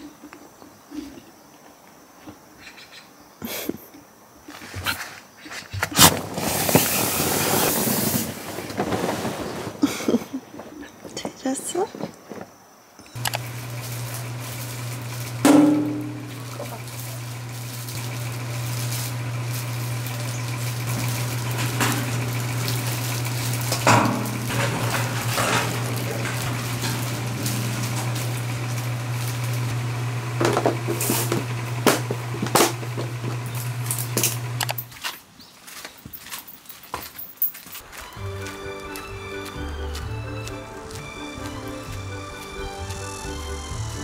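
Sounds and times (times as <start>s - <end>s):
steady low hum: 13.2s - 34.9s.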